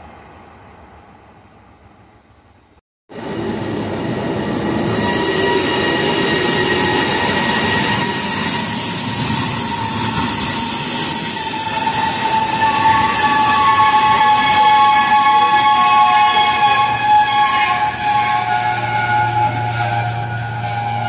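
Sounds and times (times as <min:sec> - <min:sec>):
freight train rumbling past: 0:00.0 - 0:21.0
wheels squealing: 0:04.4 - 0:15.9.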